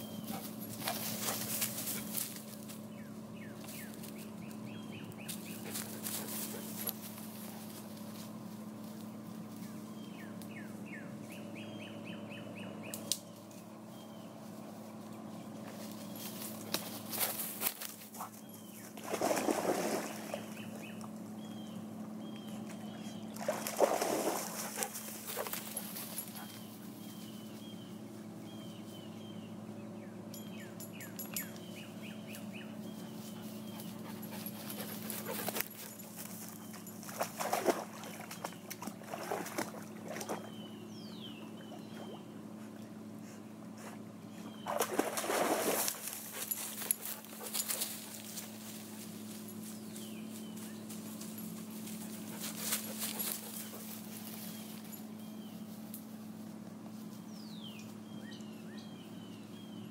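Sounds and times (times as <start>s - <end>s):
steady low hum: 0.0s - 59.9s
dogs moving about: 0.2s - 2.8s, 5.3s - 8.4s, 15.6s - 19.5s, 23.6s - 27.4s, 33.2s - 39.7s, 44.7s - 55.1s.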